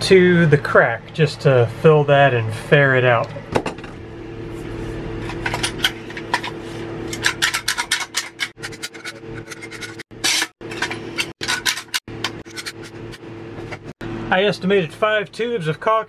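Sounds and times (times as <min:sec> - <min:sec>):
steady low hum: 0:00.0 - 0:16.0
rubbing and scraping: 0:04.5 - 0:14.0.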